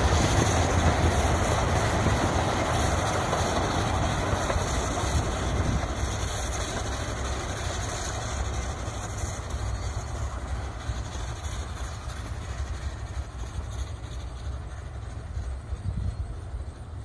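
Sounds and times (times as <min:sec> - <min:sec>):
train wheels rumbling on rails: 0:00.0 - 0:17.0
wind rumble on microphone: 0:15.6 - 0:16.9.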